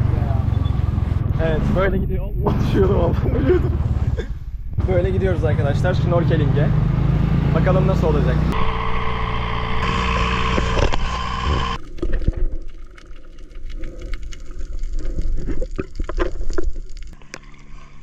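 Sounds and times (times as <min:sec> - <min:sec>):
motorboat engine running: 0:08.6 - 0:11.8
underwater clicks and bubbling: 0:11.8 - 0:17.9.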